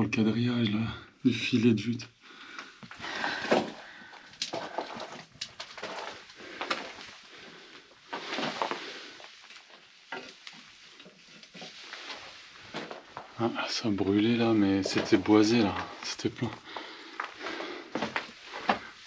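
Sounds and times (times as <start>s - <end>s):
footsteps crunching on rubble: 2.8s - 19.0s
stones knocking: 3.1s - 7.0s.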